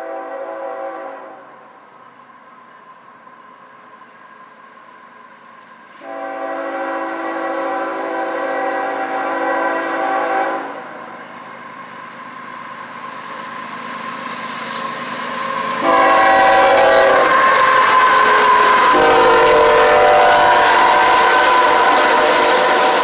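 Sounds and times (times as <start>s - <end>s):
locomotive air horn: 0.0s - 1.6s, 6.0s - 10.9s, 15.8s - 23.0s
train rumbling: 0.0s - 23.0s.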